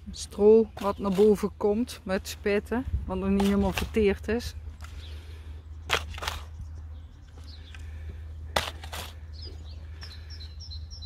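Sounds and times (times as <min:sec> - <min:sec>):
spade scraping sandy soil: 0:00.1 - 0:02.3, 0:03.1 - 0:06.6, 0:08.5 - 0:09.7
bird chirping: 0:04.3 - 0:11.0.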